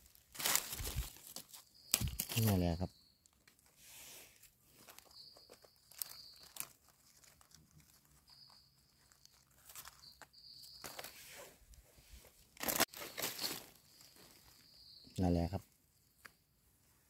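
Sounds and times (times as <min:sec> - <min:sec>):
dry leaves crackling and rustling: 0:00.0 - 0:03.7, 0:04.8 - 0:11.2, 0:12.6 - 0:14.8.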